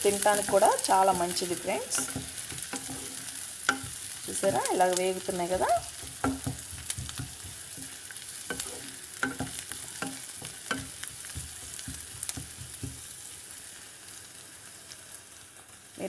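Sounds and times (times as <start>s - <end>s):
onions sizzling in oil: 0.0s - 16.0s
wooden spatula scraping a pan: 0.3s - 4.7s, 5.4s - 13.1s.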